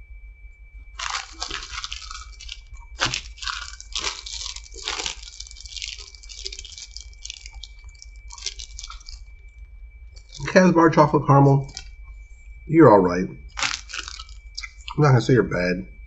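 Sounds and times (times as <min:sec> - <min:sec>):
faint high whine: 0:00.0 - 0:16.0
plastic wrapper crinkling: 0:01.0 - 0:10.7, 0:11.6 - 0:12.0, 0:13.4 - 0:15.0.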